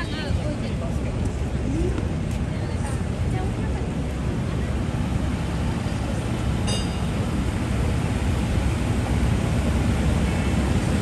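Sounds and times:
traffic rumble: 0.0s - 11.0s
brief high-pitched ring: 6.7s - 7.2s.

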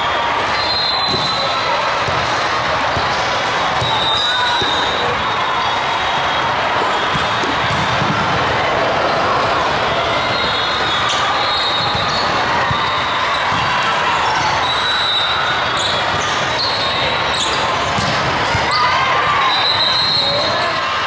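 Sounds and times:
volleyballs being hit: 6.9s - 8.4s, 17.8s - 18.7s
shoe squeaks: 14.6s - 18.0s.

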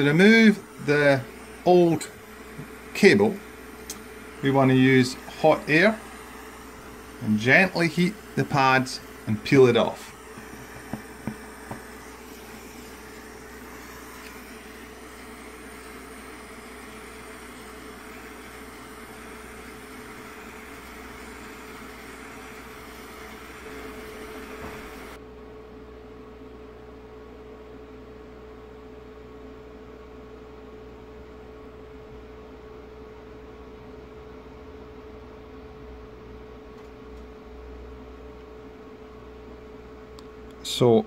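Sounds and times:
hot-air soldering tool hissing: 0.0s - 25.2s
faint steady hum: 0.0s - 41.0s.

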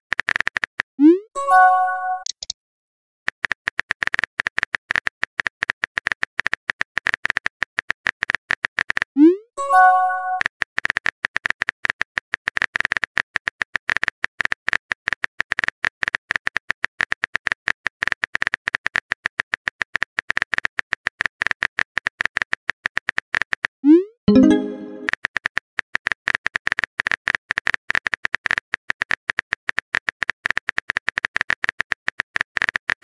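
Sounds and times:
phone keyboard clicks: 2.2s - 2.5s.

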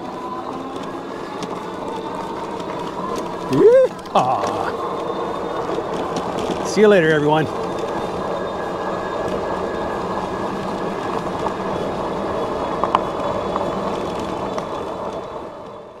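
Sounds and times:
electric motor hum: 0.0s - 15.9s
tyres rolling on dirt: 0.0s - 16.0s.

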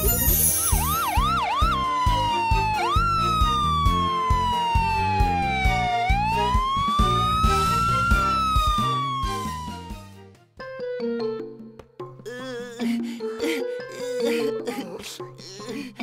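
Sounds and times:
background music with steady beat: 0.0s - 16.0s
ambulance siren: 0.5s - 10.2s.

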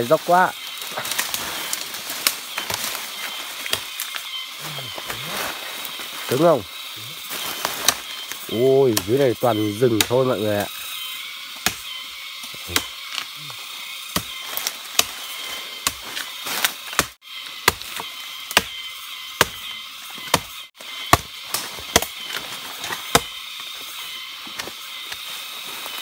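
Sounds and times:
high-pitched drone: 0.0s - 16.2s
blade chopping wood: 0.8s - 4.2s, 7.2s - 9.2s, 9.8s - 10.7s, 11.5s - 13.4s, 14.0s - 26.0s.

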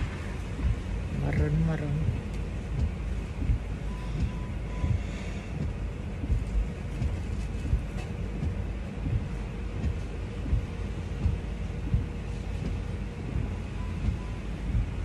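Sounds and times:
car cabin rumble: 0.0s - 15.0s
short beep: 3.9s - 5.0s.

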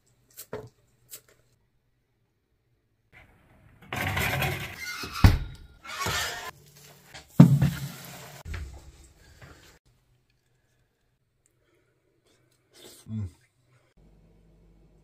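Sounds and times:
metal baking tray rustling and scraping: 3.8s - 5.2s.

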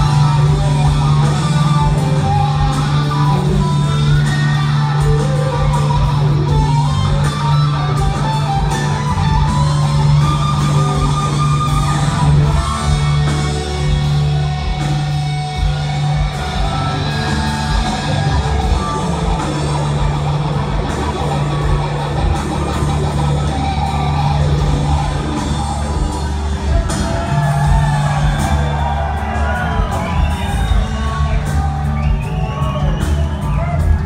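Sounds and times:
electric guitar: 0.0s - 34.0s
live rock band playing: 0.0s - 34.0s.

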